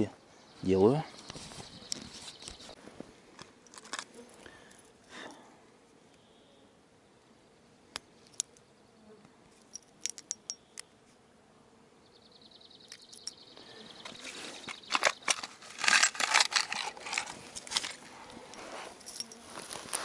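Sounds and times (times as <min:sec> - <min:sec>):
grass rustling: 0:01.1 - 0:05.2, 0:12.8 - 0:20.0
fishing tackle metal clicks: 0:09.7 - 0:10.8
tackle box rattling: 0:14.9 - 0:18.0.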